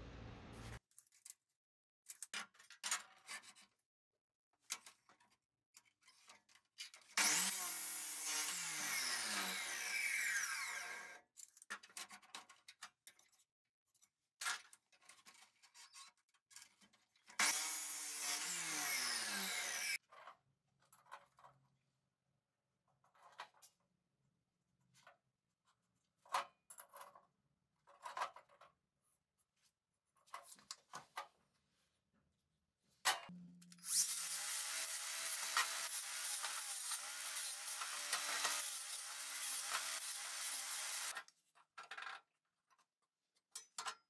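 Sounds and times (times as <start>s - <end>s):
chop saw cutting steel tube: 7.2s - 11.2s, 17.4s - 20.0s, 33.3s - 41.2s.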